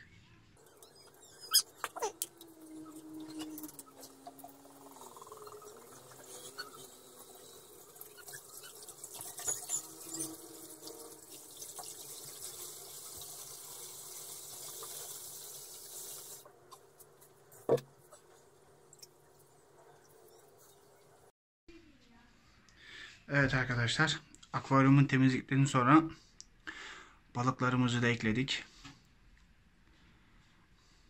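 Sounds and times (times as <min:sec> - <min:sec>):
water pouring and splashing: 0:00.6 - 0:21.3.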